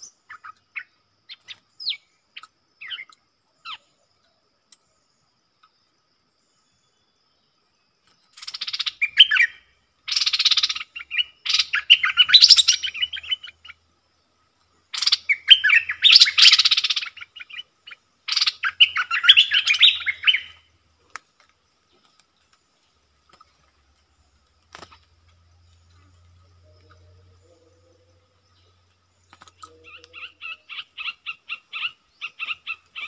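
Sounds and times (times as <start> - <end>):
bird chattering song: 0.0 - 20.8, 21.4 - 33.0
faint bird clicks: 2.3 - 3.3, 4.1 - 5.8, 21.0 - 27.2, 28.9 - 30.3.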